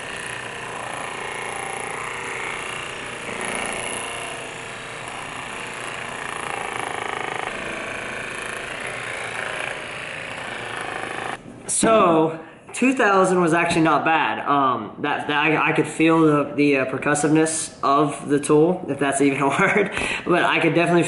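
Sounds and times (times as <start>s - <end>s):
massage gun buzzing: 0.0s - 11.4s.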